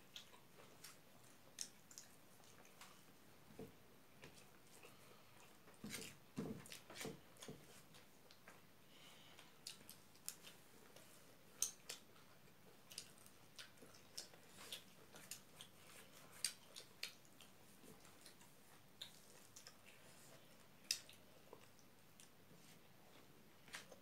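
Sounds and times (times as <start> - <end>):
wet chewing smacks: 0.1 - 3.1, 9.6 - 22.4.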